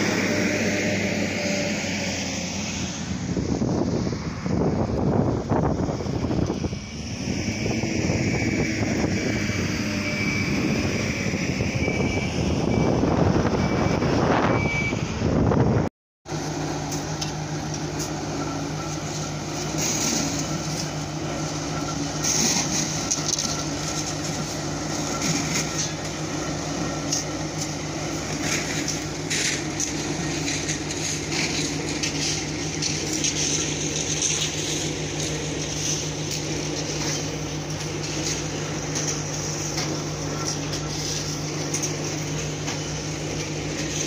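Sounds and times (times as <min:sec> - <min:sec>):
machine engine droning: 0:00.0 - 0:14.3, 0:15.0 - 0:44.0
shovels scraping gravel: 0:19.0 - 0:44.0.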